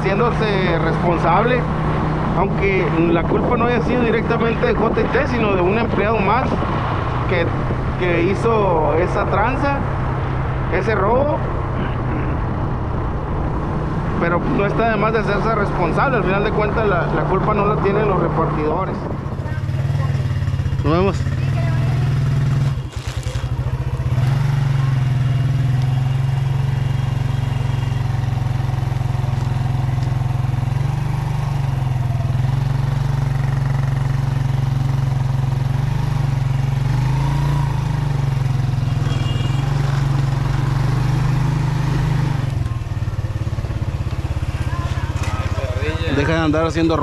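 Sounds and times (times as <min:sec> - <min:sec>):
motorcycle engine running: 0:16.0 - 0:47.0.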